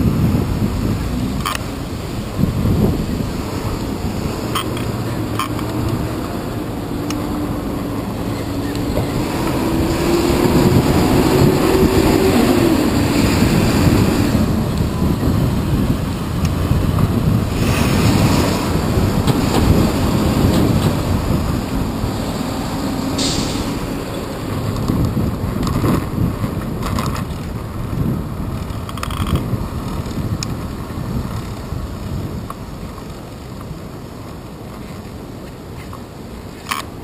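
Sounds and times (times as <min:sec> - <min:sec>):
city traffic rumble: 0:00.0 - 0:37.0
wind buffeting microphone: 0:00.0 - 0:37.0
vehicle engine revving: 0:00.1 - 0:25.3.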